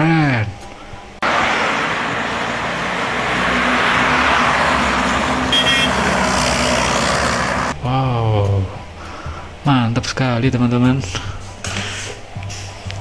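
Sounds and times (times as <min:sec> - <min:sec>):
road noise: 0:00.9 - 0:07.8
jeep engine running: 0:01.2 - 0:07.8.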